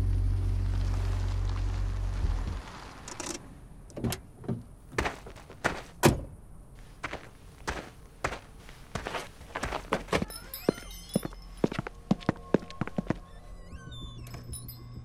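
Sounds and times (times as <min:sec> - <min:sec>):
boot footsteps on hard ground: 0:04.9 - 0:06.0, 0:06.8 - 0:13.3.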